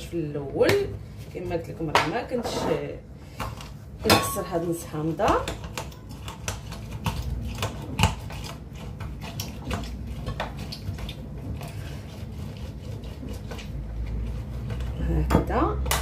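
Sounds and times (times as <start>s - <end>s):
low steady hum: 0.0s - 16.0s
citrus juicer clicks and scrapes: 5.5s - 16.0s.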